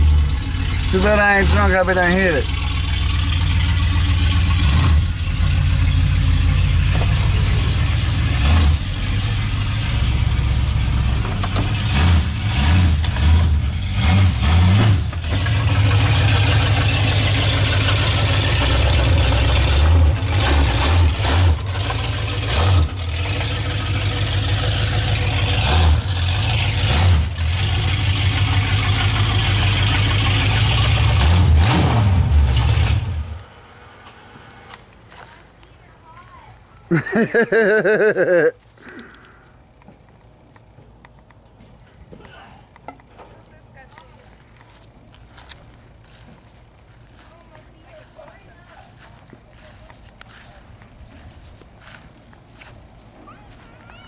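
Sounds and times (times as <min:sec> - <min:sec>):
truck engine idling and revving: 0:00.0 - 0:35.6, 0:43.0 - 0:54.0.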